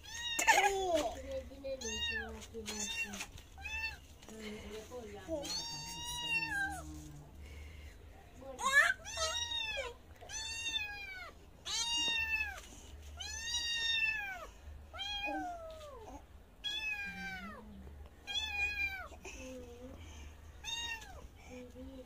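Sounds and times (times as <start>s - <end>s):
kitten meowing: 5.5s - 6.8s, 9.0s - 12.6s.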